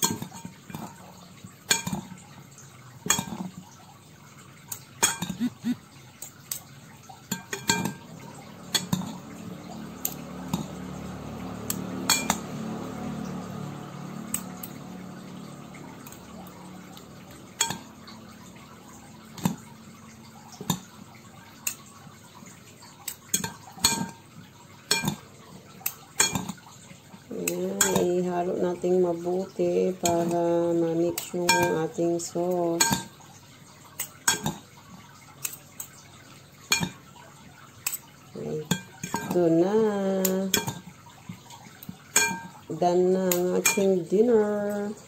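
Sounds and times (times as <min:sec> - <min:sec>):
metal utensils clinking against bowl: 0:00.0 - 0:01.0, 0:01.6 - 0:02.2, 0:03.0 - 0:03.6, 0:04.7 - 0:05.5, 0:06.2 - 0:09.3, 0:11.6 - 0:12.5, 0:16.0 - 0:17.9, 0:23.0 - 0:24.3, 0:24.9 - 0:26.6, 0:27.4 - 0:28.3, 0:29.8 - 0:33.2, 0:33.9 - 0:34.7, 0:35.4 - 0:36.0, 0:36.7 - 0:37.1, 0:37.8 - 0:44.3
low steady hum: 0:00.0 - 0:45.0.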